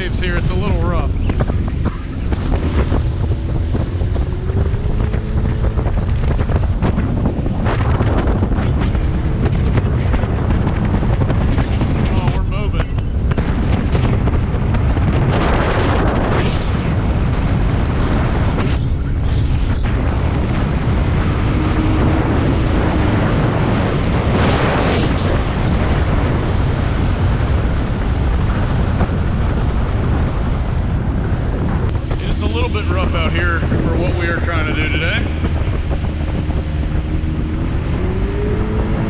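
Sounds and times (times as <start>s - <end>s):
outboard motor running: 0.0s - 16.4s, 28.8s - 39.0s
wind rushing over microphone: 0.0s - 39.0s.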